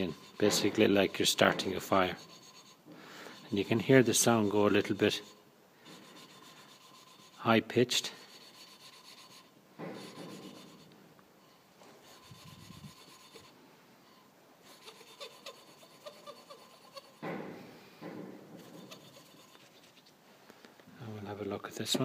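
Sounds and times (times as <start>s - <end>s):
valve lapping grinding rasp: 0.0s - 11.0s, 12.0s - 13.6s, 14.6s - 17.2s, 18.6s - 19.7s.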